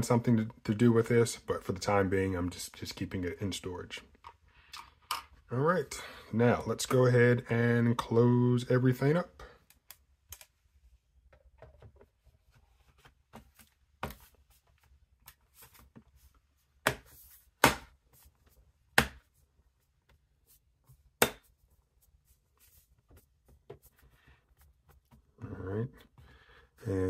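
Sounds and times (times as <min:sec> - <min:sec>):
quiet clicks and taps: 0:09.6 - 0:10.6.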